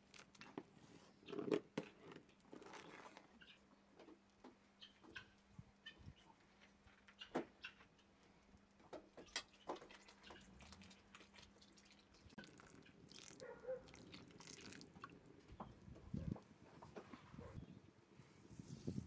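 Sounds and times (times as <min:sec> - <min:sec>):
faint splashing: 0:09.8 - 0:15.5
water pouring into pot: 0:11.7 - 0:15.2.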